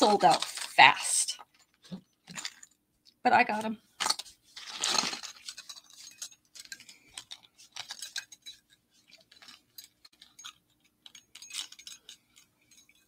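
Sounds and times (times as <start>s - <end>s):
metal earrings clinking: 4.0s - 13.0s.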